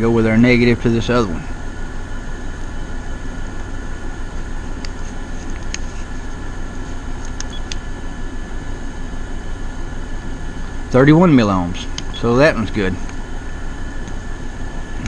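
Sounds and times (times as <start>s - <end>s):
air conditioners humming: 0.0s - 15.0s
light clicks: 7.2s - 7.9s.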